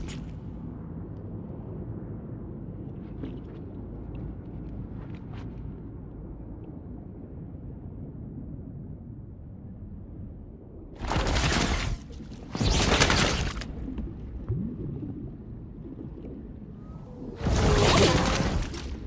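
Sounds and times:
muffled underwater battle rumble: 0.0s - 19.0s
bullets streaking into water: 11.0s - 14.1s.

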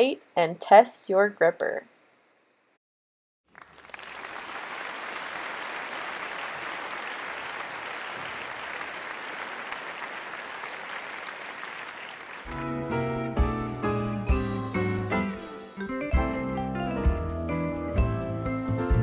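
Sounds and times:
crowd applauding: 3.5s - 12.7s
music: 12.5s - 19.0s.

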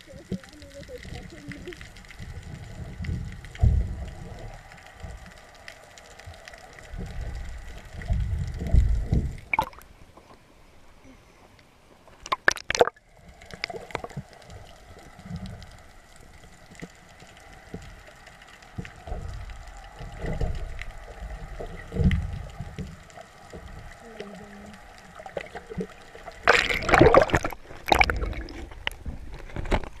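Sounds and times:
faint steady hum: 0.0s - 29.9s
muffled underwater sloshing: 0.0s - 30.0s
loud water splashes: 12.2s - 14.2s, 25.4s - 29.0s.

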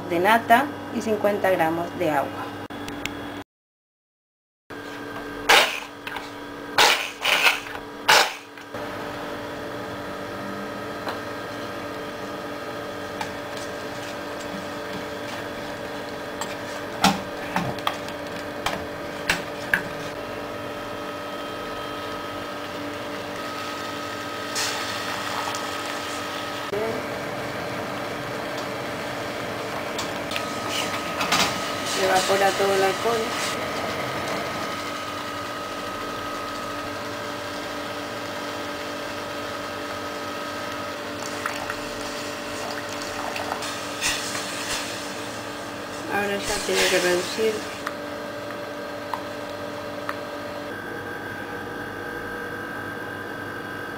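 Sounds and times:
hand blender humming: 8.8s - 43.7s.

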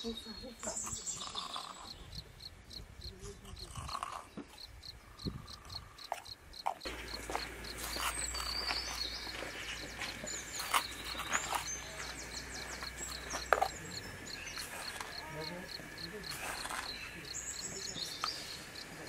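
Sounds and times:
birds chirping: 0.0s - 19.0s
insect chirping: 0.0s - 19.0s.

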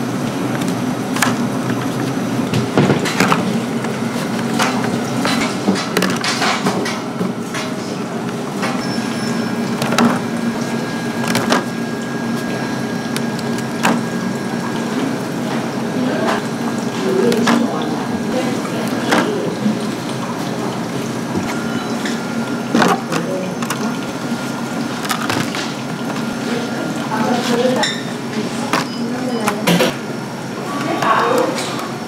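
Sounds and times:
knocks and clicks: 9.7s - 10.3s, 11.2s - 11.8s.

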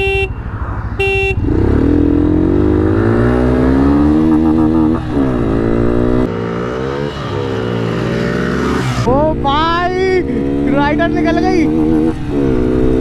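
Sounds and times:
motorcycle horn beep: 0.0s - 0.4s, 1.0s - 1.6s
motorcycles accelerating hard: 1.4s - 13.0s.

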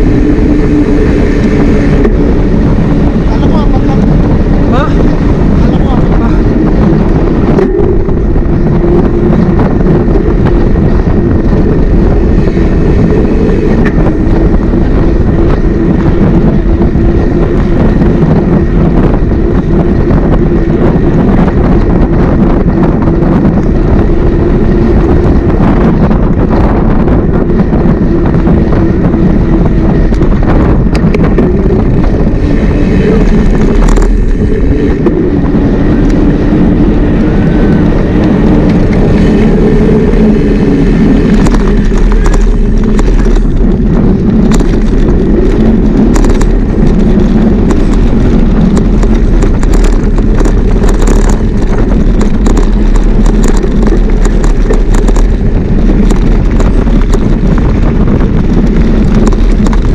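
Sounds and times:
wind buffeting microphone: 0.0s - 59.9s
clicks and rattles: 41.2s - 59.9s.

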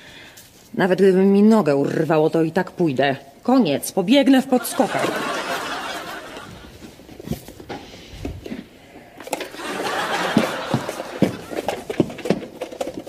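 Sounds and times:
audience laughter: 4.4s - 6.8s, 9.5s - 11.6s.

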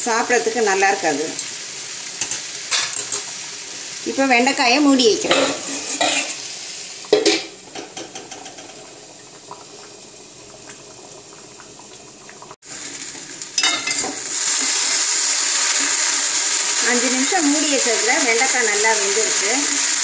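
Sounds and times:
food sizzling: 0.0s - 20.0s
pot simmering: 0.0s - 20.0s
metal spatula scraping pan: 5.2s - 6.4s.

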